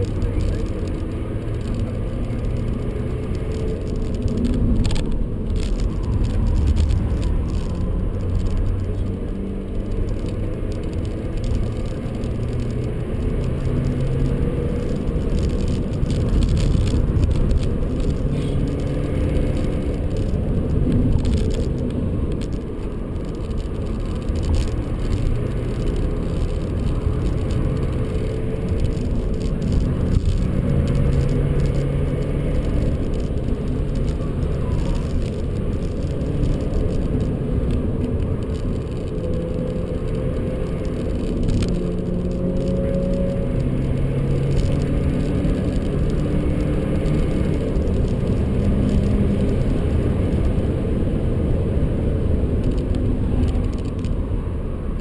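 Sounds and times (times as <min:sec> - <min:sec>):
car engine from inside cabin: 0:00.0 - 0:55.0
tyre and road rumble: 0:00.0 - 0:55.0.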